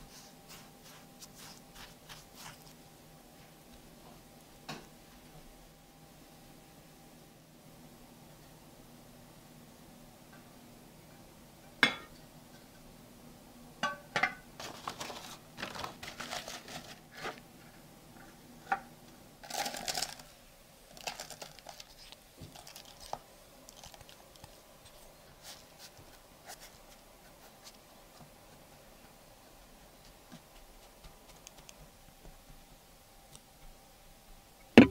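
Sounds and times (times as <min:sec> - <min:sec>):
paper crinkling: 0:00.0 - 0:02.8, 0:14.6 - 0:17.5, 0:19.4 - 0:28.2
spatula scraping crumbs: 0:00.0 - 0:02.8.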